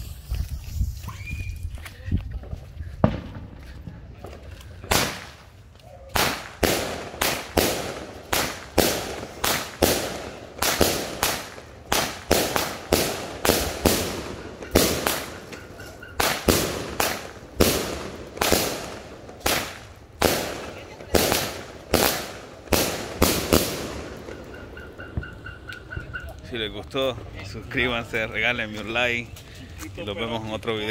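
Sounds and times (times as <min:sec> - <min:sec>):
firework shots bursting: 0:03.0 - 0:26.0.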